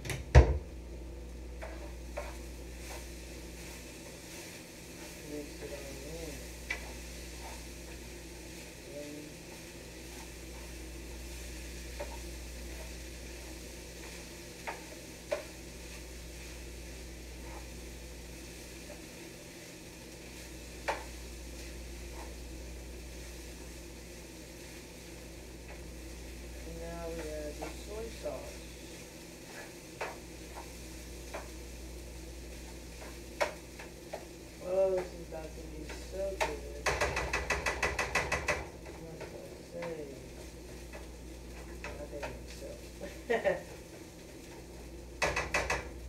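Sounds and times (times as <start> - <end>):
rice sizzling in a frying pan: 0.0 - 46.0
utensil clicking and scraping pan: 1.6 - 4.4.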